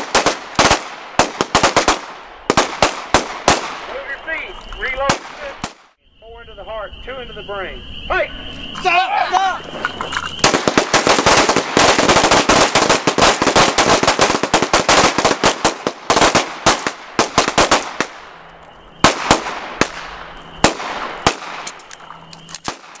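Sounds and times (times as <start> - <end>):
pistol shots: 0.0 - 4.1, 5.0 - 5.9, 10.4 - 18.3, 19.0 - 23.0.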